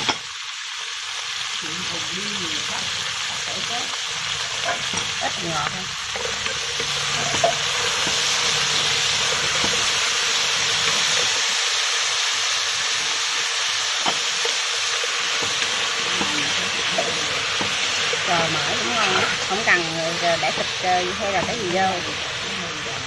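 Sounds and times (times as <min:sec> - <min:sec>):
beans sizzling in hot oil: 0:00.0 - 0:23.0.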